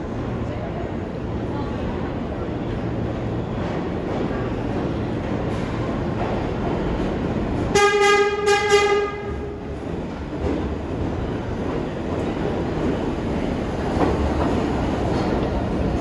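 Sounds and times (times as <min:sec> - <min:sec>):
train rumbling low: 0:00.0 - 0:16.0
train horn blasts: 0:07.7 - 0:09.6.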